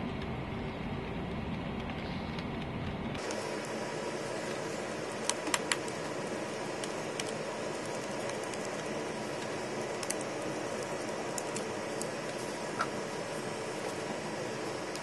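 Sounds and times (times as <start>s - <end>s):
steady background hiss: 3.2s - 15.0s.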